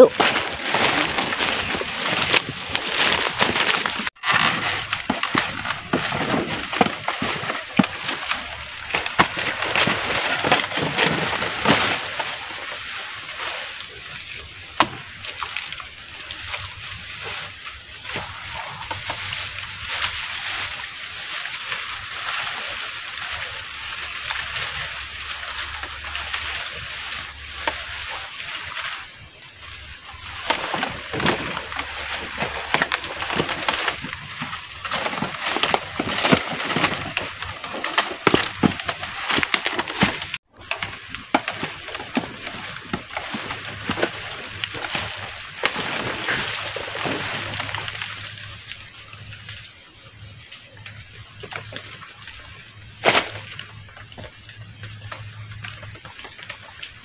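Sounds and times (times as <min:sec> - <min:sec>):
leaves rustling: 0:00.0 - 0:57.0.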